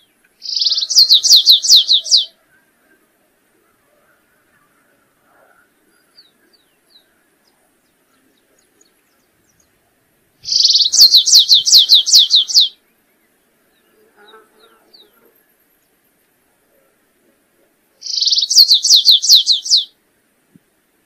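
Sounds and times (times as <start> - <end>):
finch singing whistles: 0.4 - 2.4, 10.4 - 12.8, 18.0 - 19.9.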